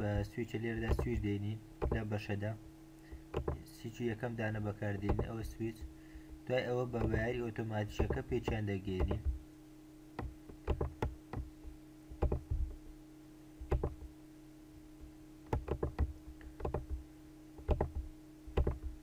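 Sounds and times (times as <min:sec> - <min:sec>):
faint steady hum: 0:00.0 - 0:19.0
computer mouse clicking: 0:12.2 - 0:12.5, 0:13.7 - 0:14.0, 0:15.5 - 0:17.0, 0:17.6 - 0:18.9.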